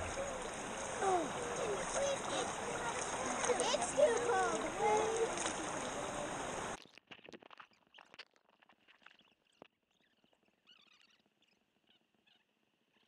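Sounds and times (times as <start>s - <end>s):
river water rushing and splashing: 0.0s - 6.8s
muffled underwater clicks and crackling: 0.0s - 12.4s.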